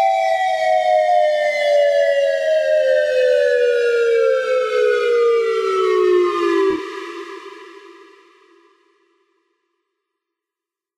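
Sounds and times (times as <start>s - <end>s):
electronic warning siren winding down: 0.0s - 7.3s.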